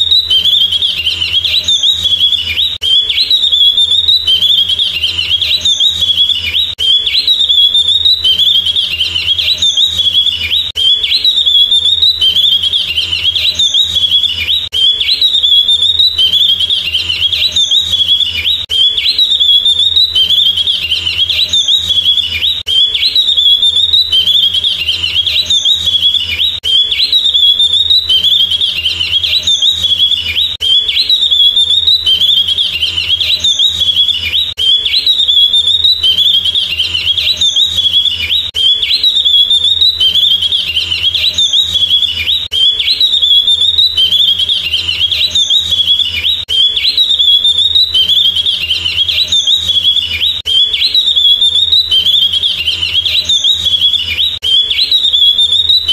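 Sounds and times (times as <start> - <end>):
bird twittering song: 0.0 - 55.9.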